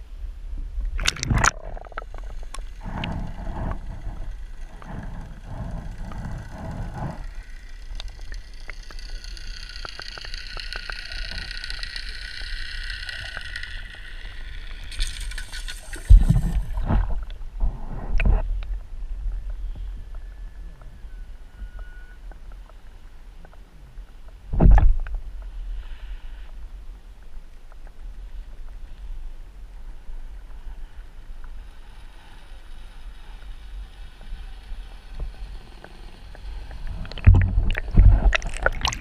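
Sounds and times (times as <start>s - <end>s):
whining hum: 0.0s - 27.2s, 27.8s - 39.0s
muffled underwater sloshing: 36.6s - 39.0s.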